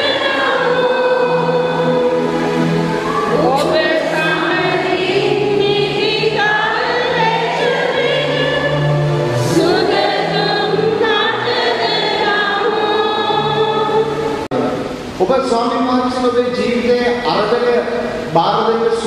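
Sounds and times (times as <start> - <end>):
congregation singing a hymn: 0.0 - 14.5.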